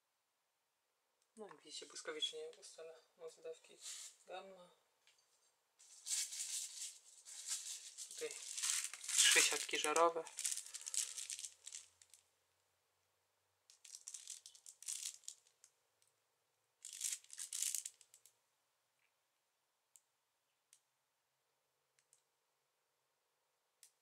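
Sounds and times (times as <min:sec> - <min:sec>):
paper packet crinkling: 0:05.8 - 0:12.2, 0:13.7 - 0:15.6, 0:16.8 - 0:18.2.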